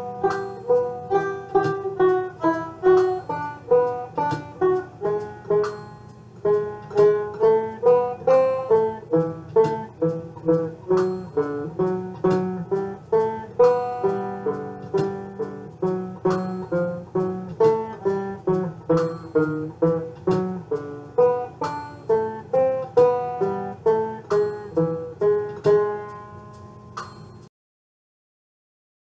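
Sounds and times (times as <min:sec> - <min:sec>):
banjo playing a waltz: 0:00.0 - 0:26.8.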